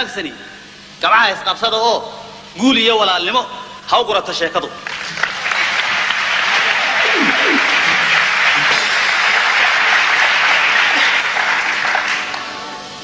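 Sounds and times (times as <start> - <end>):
large audience applauding: 4.8 - 12.8.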